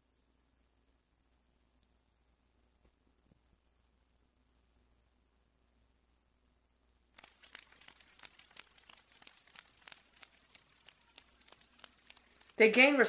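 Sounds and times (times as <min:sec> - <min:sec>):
people clapping: 0:07.2 - 0:13.0.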